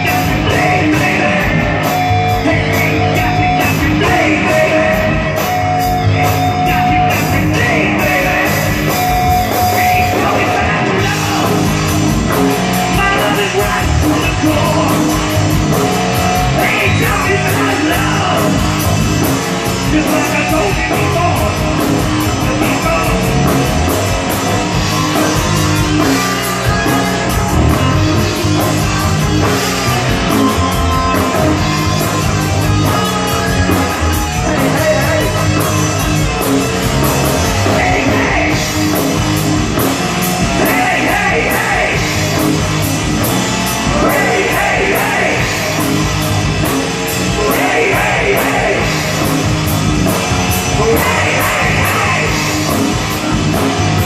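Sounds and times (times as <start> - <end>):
person singing: 0.0 - 11.8, 12.8 - 15.6, 16.3 - 18.8, 19.7 - 23.7, 28.5 - 36.1, 37.0 - 39.2, 40.4 - 42.6, 43.8 - 46.1, 47.2 - 49.5, 50.7 - 53.6
electric guitar: 0.0 - 54.0.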